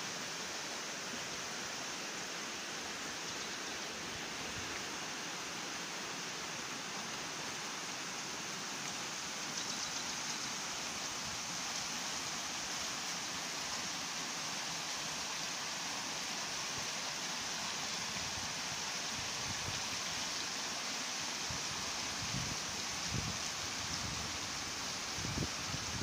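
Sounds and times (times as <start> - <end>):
stream running over rocks: 0.0 - 26.0.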